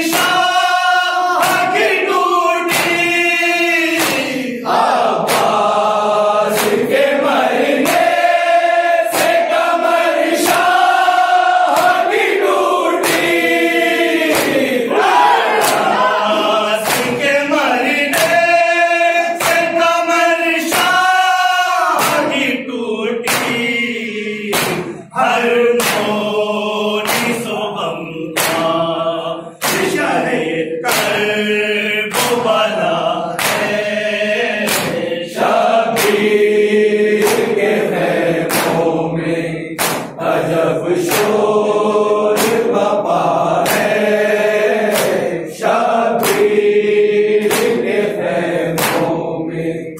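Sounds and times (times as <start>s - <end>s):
men chanting in unison: 0.0s - 49.9s
hands striking chests: 3.9s - 4.4s, 14.2s - 17.3s, 24.5s - 25.0s, 28.4s - 28.7s, 29.6s - 30.0s, 33.4s - 33.8s, 34.6s - 35.0s, 35.9s - 36.3s, 37.2s - 37.6s, 38.4s - 38.9s, 39.8s - 40.2s, 42.4s - 42.8s, 44.8s - 45.2s, 46.2s - 46.6s, 47.4s - 47.9s, 48.7s - 49.2s.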